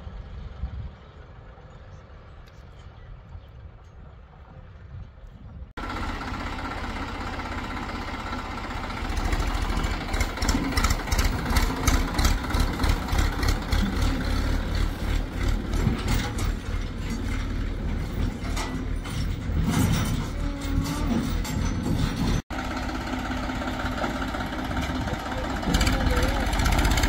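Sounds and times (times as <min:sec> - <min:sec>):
heavy diesel engine running: 0:05.7 - 0:27.0
irregular clatter of knocks: 0:10.1 - 0:22.4.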